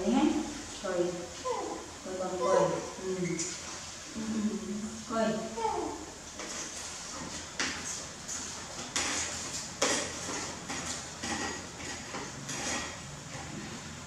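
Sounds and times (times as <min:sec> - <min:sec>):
metal ladle scraping plastic basket: 0:06.4 - 0:13.9.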